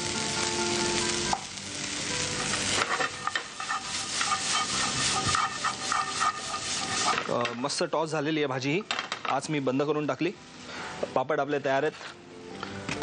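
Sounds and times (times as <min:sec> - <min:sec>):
vegetables sizzling in oil: 0:00.0 - 0:11.1
spatula scraping a pan: 0:02.4 - 0:07.4.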